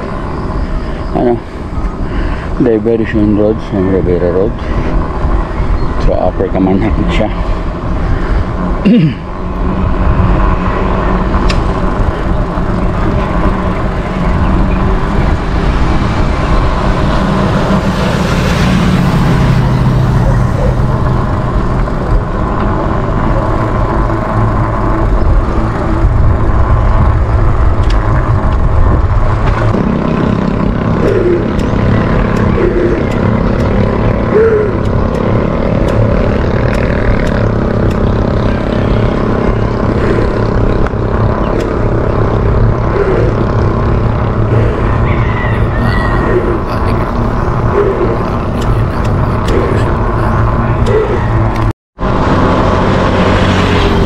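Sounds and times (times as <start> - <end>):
road noise: 0.0 - 54.0
wind buffeting microphone: 0.0 - 54.0.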